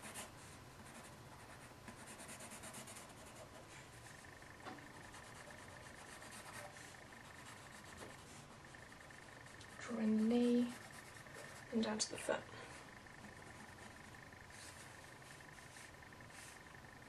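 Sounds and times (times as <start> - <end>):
pencil scratching on paper: 0.0 - 11.9.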